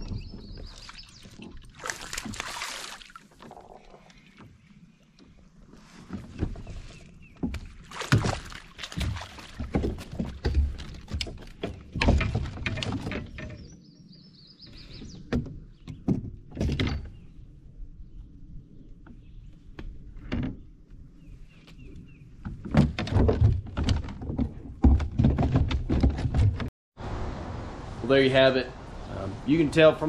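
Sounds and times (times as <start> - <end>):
fish thrashing against kayak hull: 6.2 - 13.2.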